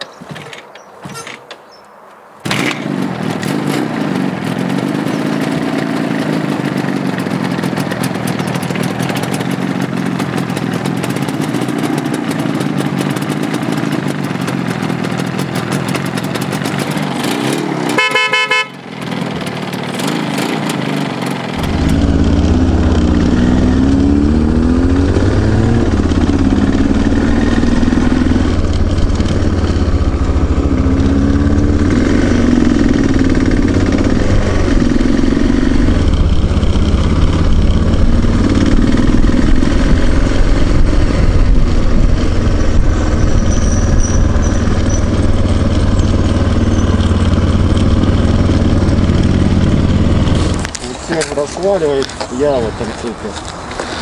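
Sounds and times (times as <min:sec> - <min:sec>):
motorcycle engine running: 0:02.5 - 0:53.9
short horn beep: 0:17.9 - 0:18.8
wind rumble on microphone: 0:36.1 - 0:45.9.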